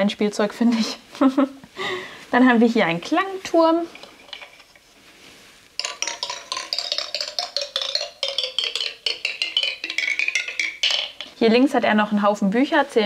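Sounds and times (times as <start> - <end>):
marble plinking down toy steps: 3.8 - 4.8, 5.8 - 11.8.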